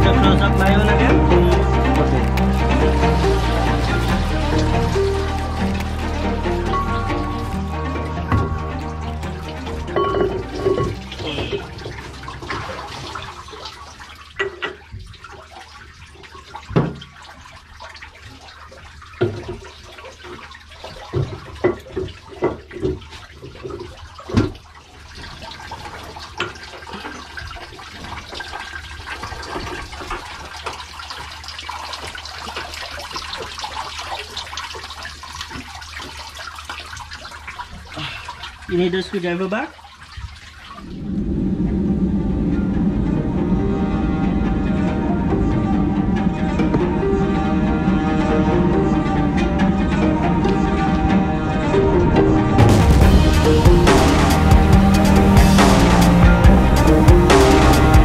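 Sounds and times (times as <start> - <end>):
water spraying hiss: 0.0 - 13.8, 53.0 - 58.0
low machinery hum: 0.0 - 14.4, 40.6 - 58.0
knocks and clanks on metal housing: 9.8 - 12.6.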